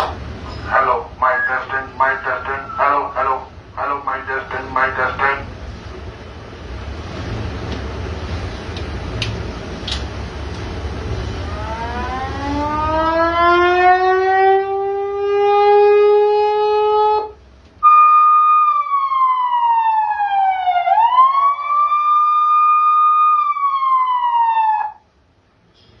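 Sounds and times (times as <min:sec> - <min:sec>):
electronic siren through loudspeakers: 0:00.6 - 0:05.2, 0:11.4 - 0:25.1.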